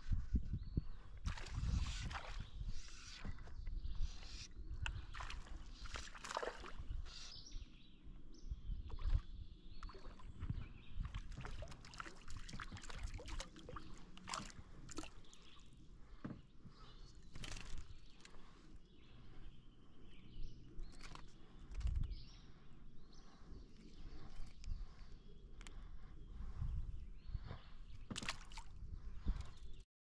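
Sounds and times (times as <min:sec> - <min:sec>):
water sloshing and dripping: 0:04.8 - 0:06.9, 0:09.8 - 0:16.3, 0:28.1 - 0:29.6
paddle splashing and knocking: 0:11.0 - 0:15.3, 0:28.1 - 0:28.7.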